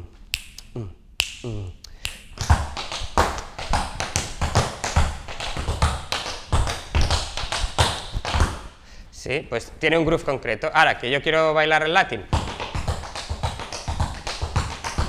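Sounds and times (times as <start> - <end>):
tap shoes on wooden floor: 2.4 - 8.7, 12.3 - 15.0.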